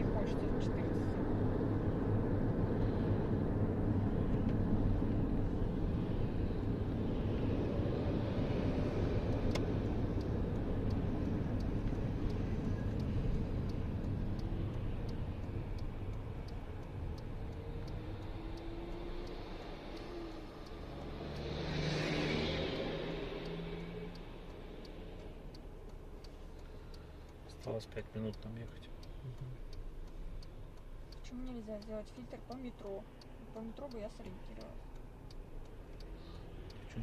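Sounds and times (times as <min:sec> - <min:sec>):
car engine and tyre rumble: 0:00.0 - 0:37.0
light regular ticking: 0:00.0 - 0:37.0.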